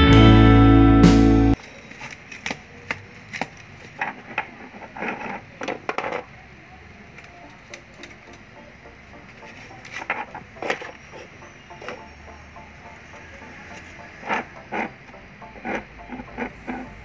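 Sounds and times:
plastic parts clicking and knocking: 0:01.6 - 0:06.3.

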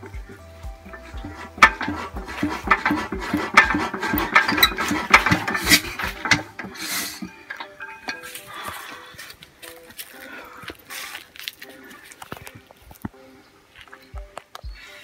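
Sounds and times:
engine clatter of knocks: 0:00.9 - 0:06.8.

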